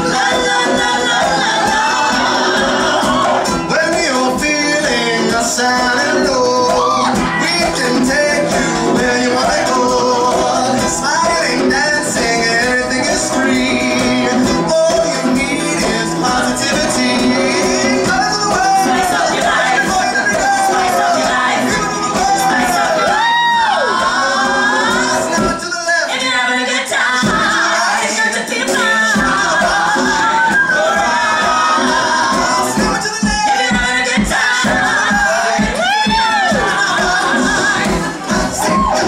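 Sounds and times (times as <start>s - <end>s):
ukulele: 0.0s - 25.6s
man singing: 0.0s - 39.0s
flute: 38.3s - 39.0s.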